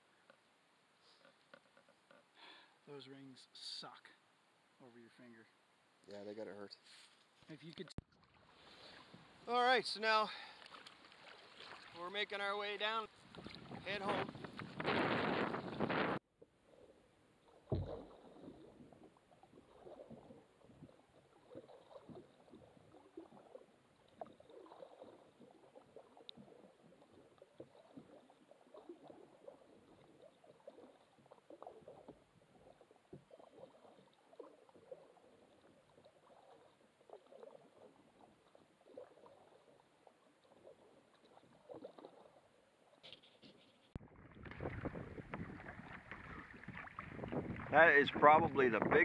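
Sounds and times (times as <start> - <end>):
water lapping and trickling: 0.0 - 49.0
thump on boat: 17.7 - 18.2.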